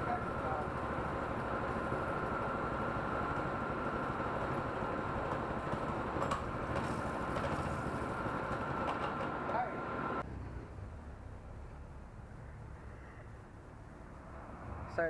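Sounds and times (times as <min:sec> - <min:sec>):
small engine idling: 0:00.0 - 0:10.2.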